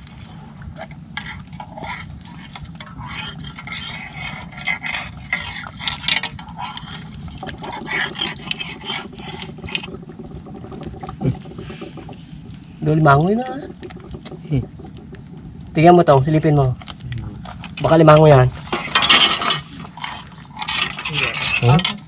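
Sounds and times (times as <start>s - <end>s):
small clicks and scrapes: 0.0s - 10.0s, 16.8s - 22.0s
water sloshing and splashing: 0.0s - 22.0s.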